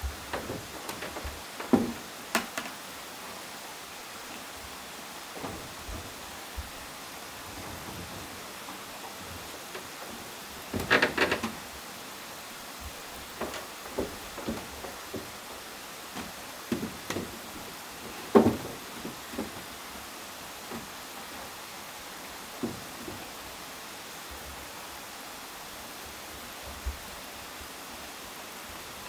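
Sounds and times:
footsteps on wooden boards: 0.0 - 2.7, 5.4 - 6.9, 7.8 - 11.8, 12.8 - 21.0
steady background hiss: 0.0 - 29.0
wooden chair knocking: 0.3 - 2.6, 10.7 - 11.6, 13.4 - 15.4, 16.2 - 19.6.

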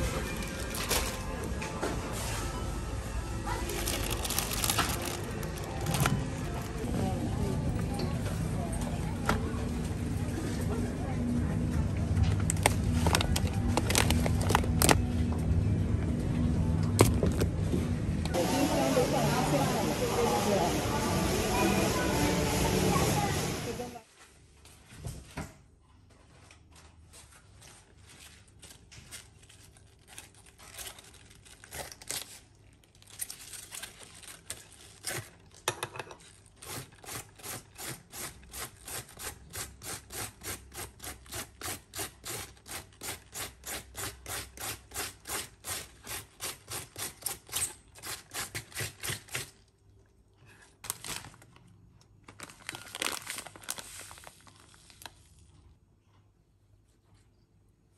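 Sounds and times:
plastic packet crinkling: 3.5 - 6.7, 12.4 - 15.1, 28.8 - 35.4, 50.8 - 55.4
cabbage rasping on a peeler: 36.6 - 49.6.

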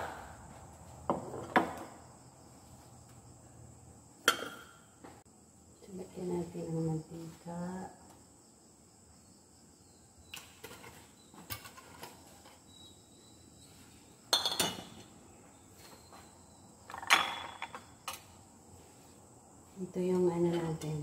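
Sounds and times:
kitchenware clattering: 4.3 - 4.8, 10.6 - 12.6, 14.3 - 15.1, 16.9 - 18.3.

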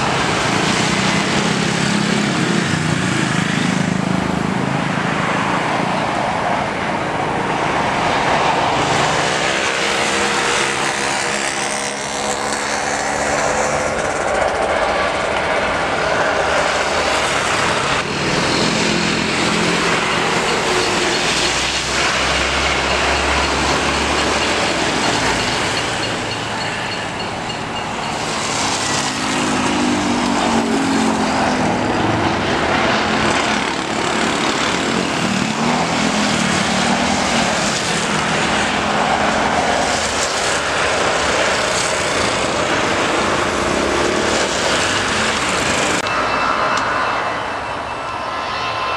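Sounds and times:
jet engines roaring: 0.0 - 48.9.

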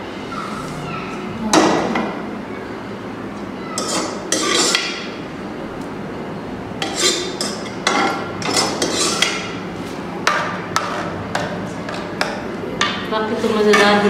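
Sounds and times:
metal spoon clinking and scraping pot: 3.8 - 5.1, 6.8 - 9.5, 10.2 - 12.9.

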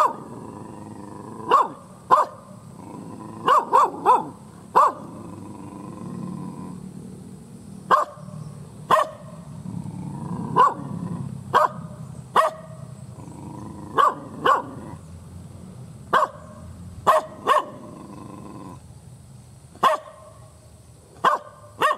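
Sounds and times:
dog barking angrily: 0.0 - 5.5, 7.9 - 9.5, 10.1 - 12.9, 13.8 - 15.0, 16.1 - 18.0, 19.8 - 20.4, 21.2 - 21.9.

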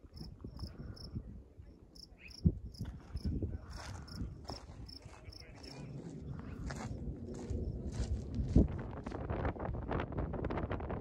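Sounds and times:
low rumble of wind and handling: 0.0 - 11.0
insect chirping: 0.1 - 1.1.

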